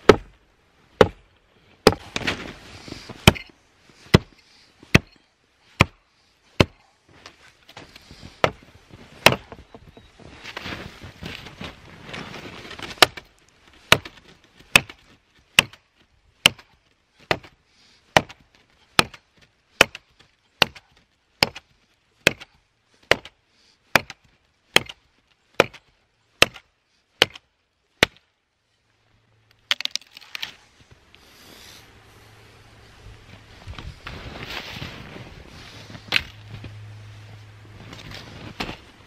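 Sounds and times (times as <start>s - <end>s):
rustle of snow and wood: 0.0s - 39.0s
axe chopping branch: 1.8s - 2.5s, 3.2s - 3.5s, 4.1s - 5.1s, 9.2s - 9.6s, 12.8s - 28.3s.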